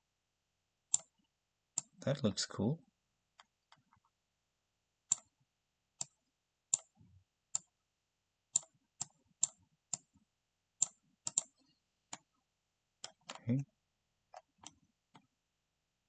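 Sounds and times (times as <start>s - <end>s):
computer mouse clicking: 0.9s - 1.1s, 5.1s - 5.3s, 6.0s - 6.9s, 8.6s - 10.1s, 10.8s - 12.3s, 13.0s - 13.4s, 14.3s - 15.3s.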